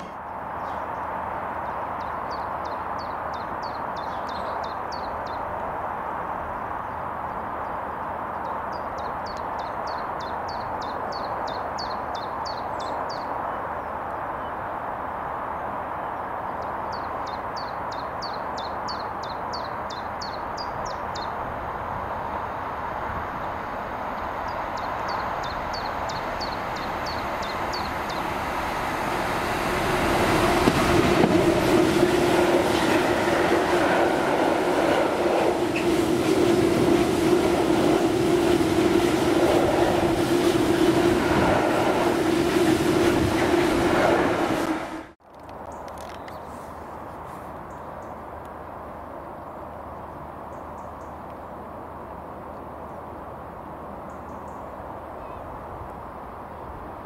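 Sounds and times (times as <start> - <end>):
diesel locomotive engine: 20.1 - 45.2
songbird chirping: 23.4 - 28.8.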